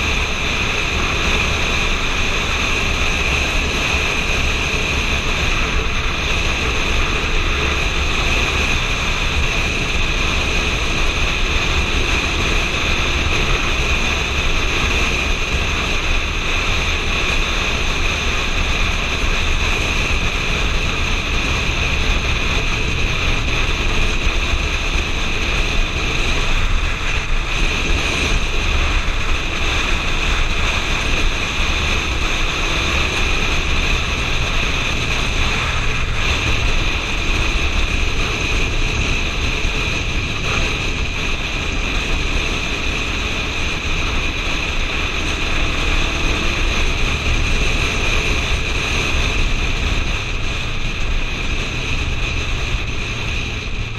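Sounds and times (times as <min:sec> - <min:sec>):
motorcycle engine running: 0:00.0 - 0:53.9
wind rushing over microphone: 0:00.0 - 0:53.9.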